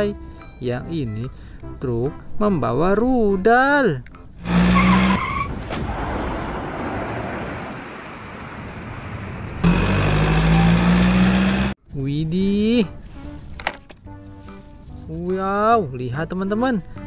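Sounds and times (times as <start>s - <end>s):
cartoon truck engine running: 4.4s - 5.2s, 9.6s - 11.8s.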